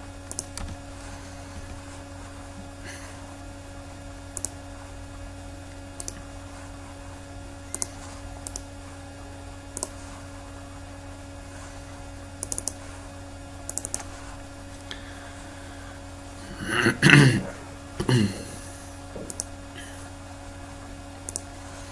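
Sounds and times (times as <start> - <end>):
low hum: 0.0 - 21.9
computer mouse clicks: 0.3 - 0.8, 4.3 - 4.6, 6.0 - 6.2, 7.7 - 8.7, 9.8 - 10.0, 12.4 - 12.8, 13.6 - 14.3, 19.2 - 19.5, 21.3 - 21.5.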